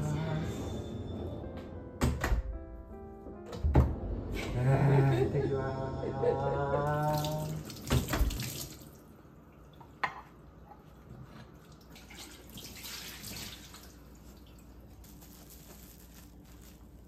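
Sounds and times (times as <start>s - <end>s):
tap water running into sink: 7.1s - 8.9s.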